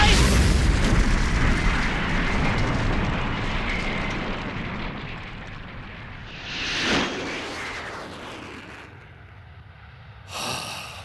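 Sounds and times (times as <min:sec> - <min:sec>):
explosion rumble: 0:00.0 - 0:08.8.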